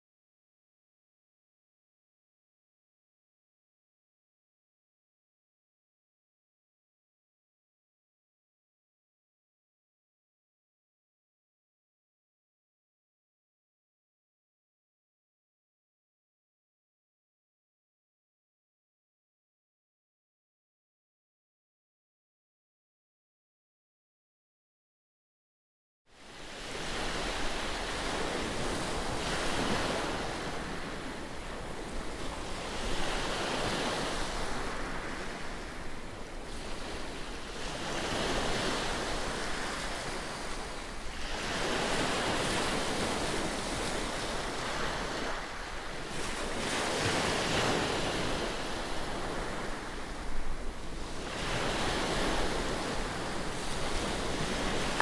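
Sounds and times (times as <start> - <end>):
waves washing onto pebble beach: 51.0 - 55.0.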